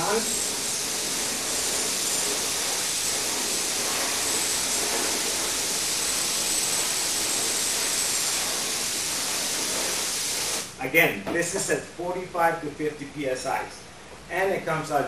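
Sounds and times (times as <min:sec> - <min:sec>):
paint spray gun hissing: 0:00.0 - 0:10.8.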